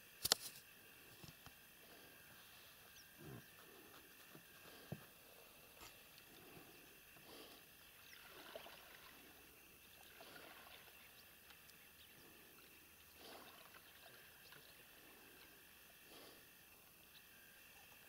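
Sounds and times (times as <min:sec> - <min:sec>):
paddle splashing in water: 0:08.2 - 0:09.2.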